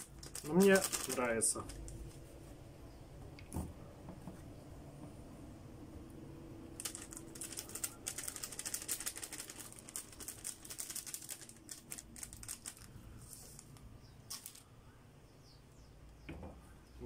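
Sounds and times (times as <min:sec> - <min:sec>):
small crackles of spice: 0:00.0 - 0:02.1, 0:06.8 - 0:14.7
paper sachet rustling: 0:00.0 - 0:02.2, 0:06.8 - 0:13.7, 0:14.3 - 0:14.7.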